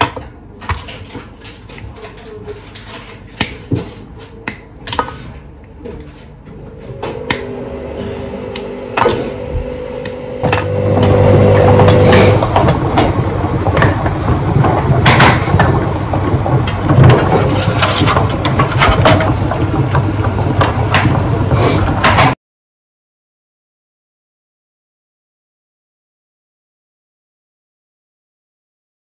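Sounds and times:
bowls and baking trays clattering: 0.0s - 7.2s, 10.5s - 22.4s
motor-like hum: 6.5s - 22.4s.

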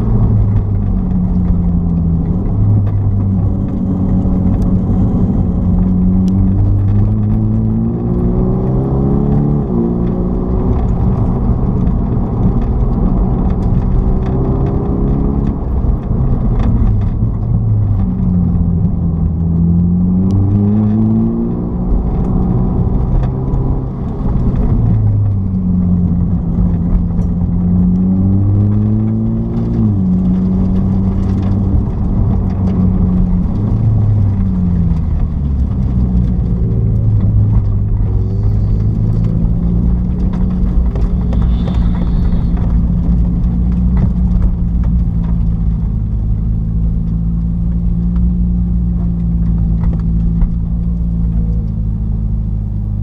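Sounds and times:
car engine accelerating: 0.0s - 53.0s.

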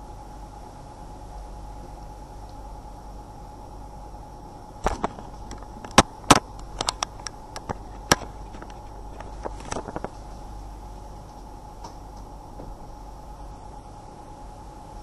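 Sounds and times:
steady background hum: 0.0s - 15.0s
sharp clicks and knocks: 4.8s - 10.2s.

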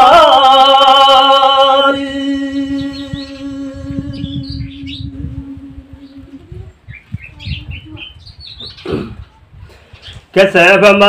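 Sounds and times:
man singing long note: 0.0s - 6.8s
small birds chirping: 2.5s - 10.4s.

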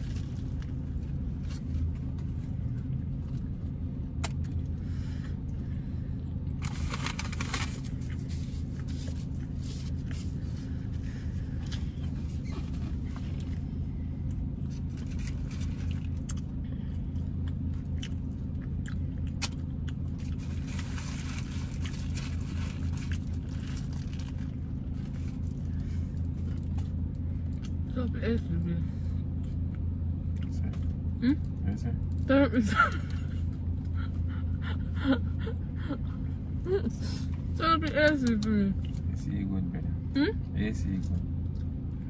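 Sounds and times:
chewing and crunching sandwich: 0.0s - 5.6s, 6.2s - 27.9s, 29.2s - 32.2s
car engine hum: 0.0s - 42.0s
foil and paper crinkling: 6.6s - 10.2s, 20.3s - 25.7s.

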